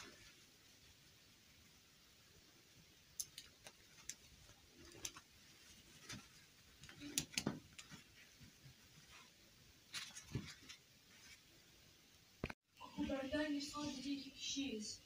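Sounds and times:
plastic dolls clicking and tapping: 3.1 - 5.3, 6.8 - 8.0.

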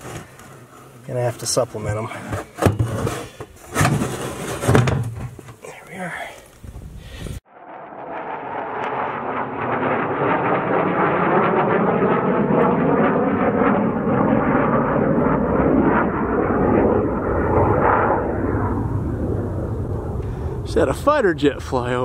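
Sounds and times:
fighter jet flying over: 7.5 - 22.0.

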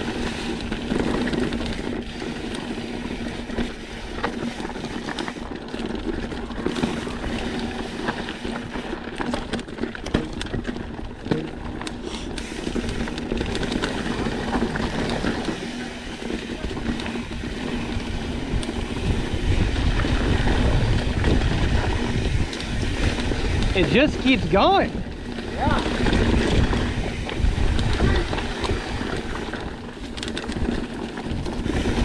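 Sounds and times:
mountain bike rattling: 0.0 - 32.0
wind on microphone: 16.5 - 32.0.

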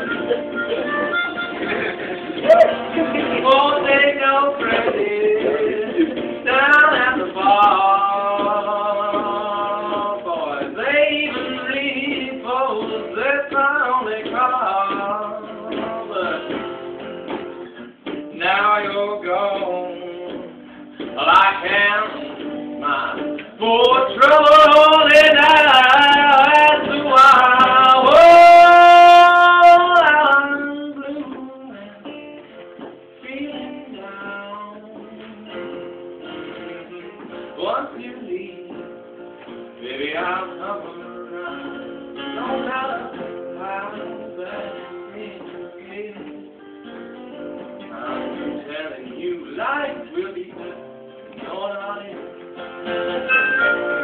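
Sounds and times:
blues harmonica: 0.0 - 3.2, 52.9 - 54.0
acoustic guitar picking: 0.0 - 54.0.

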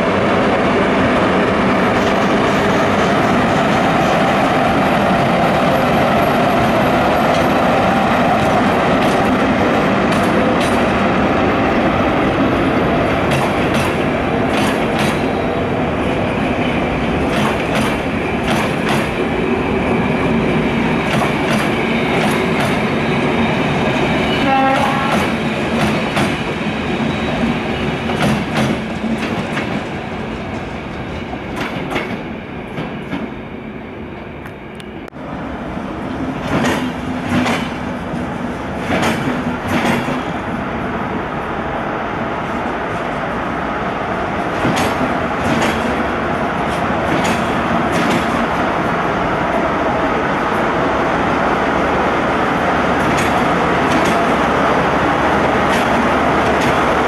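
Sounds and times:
train rolling past: 0.0 - 57.0
wheels clicking over rail joints: 13.2 - 15.3, 38.8 - 40.3, 44.5 - 46.0, 46.6 - 48.6, 53.0 - 54.4, 55.6 - 56.9.

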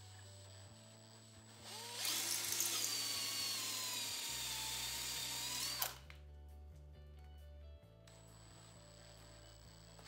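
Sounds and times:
cordless drill drilling metal: 1.2 - 6.0.

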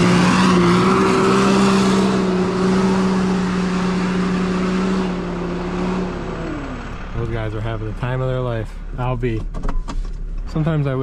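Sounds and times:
engine at high revs: 0.0 - 8.4.

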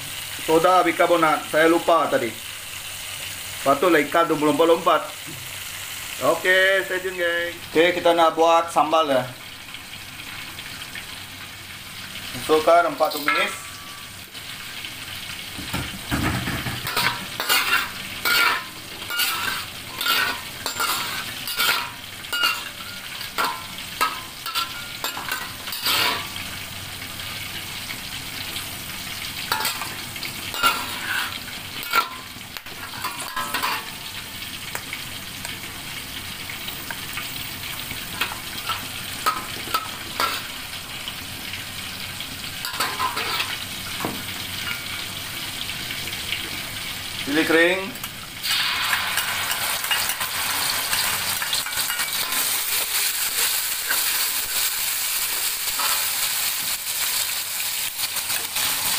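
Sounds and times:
spices sizzling in hot oil: 0.0 - 58.9
metal spatula scraping wok: 16.6 - 26.4, 29.4 - 34.0, 42.6 - 43.6, 48.5 - 56.4.

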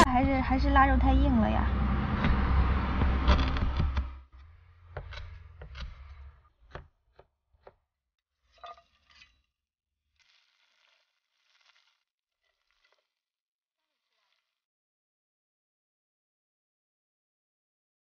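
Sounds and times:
loud low rumble: 0.0 - 4.2
cleaver chopping on wooden board: 4.9 - 7.8.

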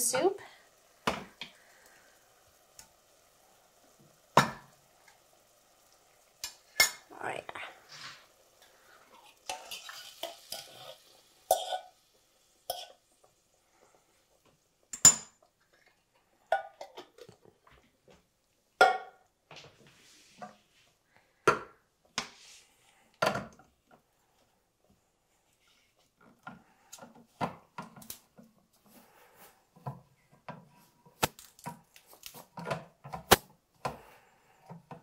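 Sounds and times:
coconut milk pouring into pot: 7.8 - 14.2.

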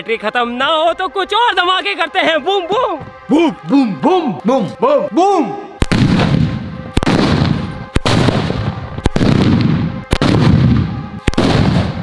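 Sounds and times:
echo of bangs: 5.8 - 12.0
firecrackers exploding: 5.8 - 12.0.

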